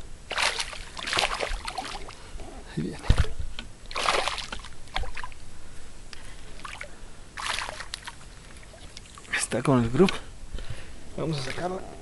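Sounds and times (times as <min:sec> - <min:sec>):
fish splashing at surface: 0:00.3 - 0:02.2, 0:03.9 - 0:05.4, 0:06.6 - 0:09.2.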